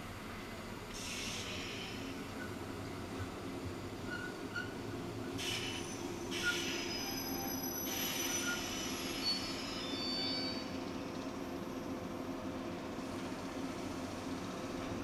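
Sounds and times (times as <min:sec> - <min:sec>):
low train rumble: 0:00.0 - 0:15.0
air brake hisses: 0:00.9 - 0:02.1, 0:05.4 - 0:10.6
train brakes squealing: 0:01.0 - 0:02.6, 0:04.0 - 0:11.2.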